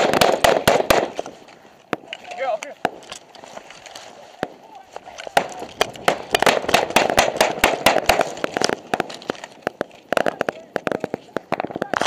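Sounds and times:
small arms gunfire: 0.0 - 1.2, 5.3 - 9.1.

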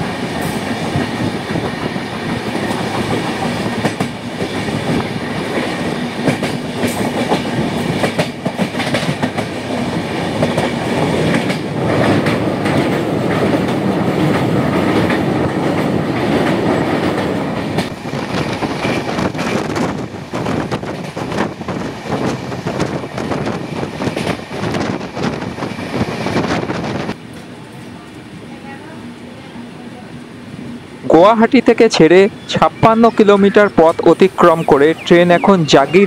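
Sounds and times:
clickety-clack over rail joints: 0.0 - 27.5
train wheels rumbling on rails: 0.0 - 36.0.

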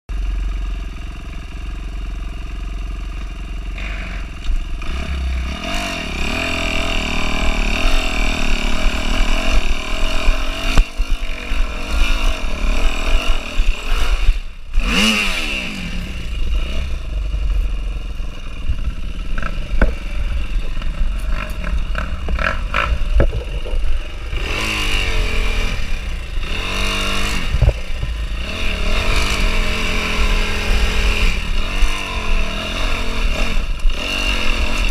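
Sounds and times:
dirt bike engine revving: 3.6 - 34.9
bike knocking and scraping over rocks: 18.5 - 24.3, 27.4 - 28.3.

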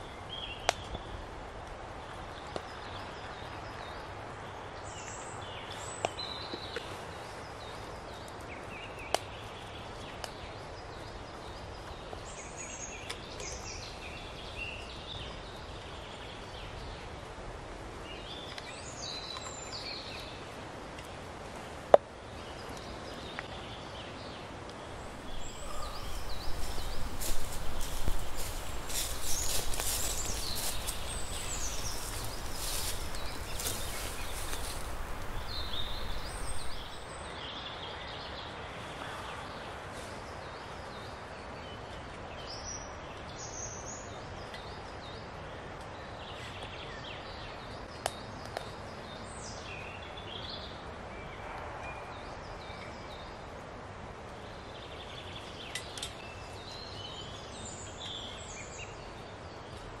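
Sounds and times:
steady background hiss: 0.0 - 51.2
bird chirps: 24.9 - 37.2.

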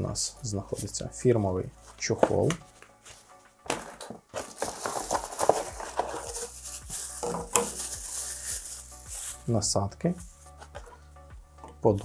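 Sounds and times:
plastic wrapping crinkling: 1.9 - 9.5.

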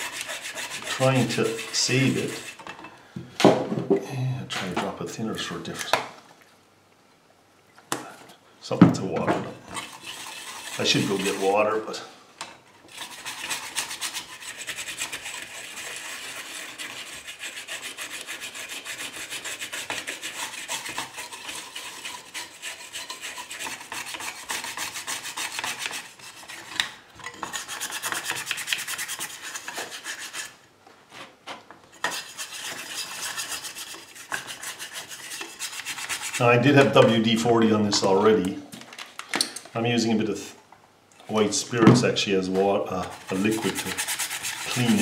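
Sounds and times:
cotton swab scrubbing metal: 0.0 - 2.6, 9.8 - 11.8, 12.9 - 26.8, 31.9 - 37.4, 43.0 - 45.0.

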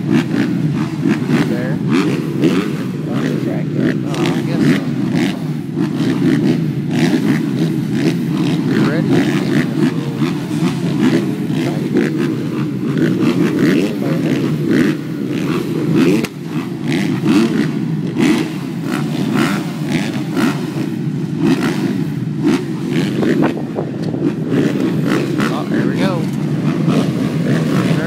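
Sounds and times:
motocross bike engines revving: 0.0 - 28.0.

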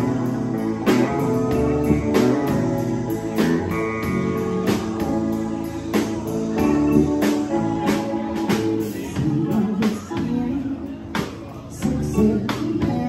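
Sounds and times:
drum kit beat: 0.0 - 13.0
live band playing: 0.0 - 13.0
man singing: 6.8 - 13.0.

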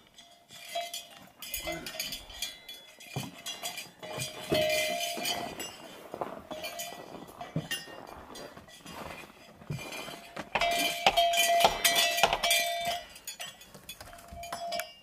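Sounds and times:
small metal bells jingling: 0.0 - 15.0.

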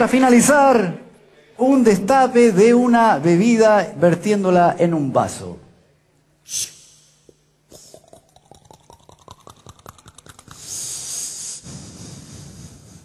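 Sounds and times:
mouth fizzing hiss: 6.4 - 13.0.

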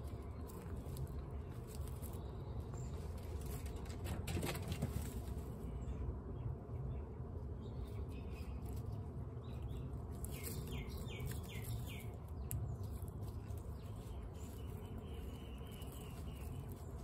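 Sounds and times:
guinea pigs crunching pellets: 0.0 - 5.6, 7.7 - 17.0
bird chirping: 5.6 - 17.0.

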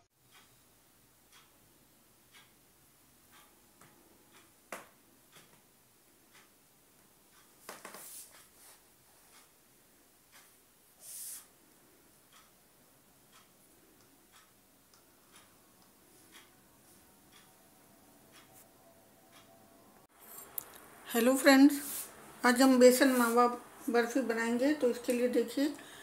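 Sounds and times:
brief hiss: 11.0 - 11.5.

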